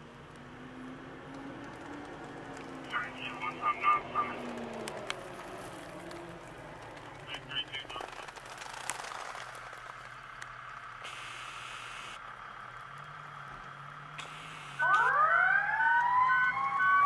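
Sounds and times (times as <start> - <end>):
low street noise: 0.0 - 17.0
brief hiss: 14.2 - 14.8
ambulance siren wailing: 14.8 - 17.0.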